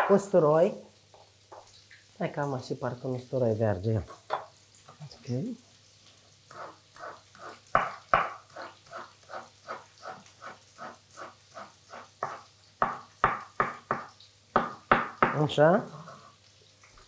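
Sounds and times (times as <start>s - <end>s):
knife chopping on wooden board: 7.4s - 8.7s, 12.0s - 15.4s.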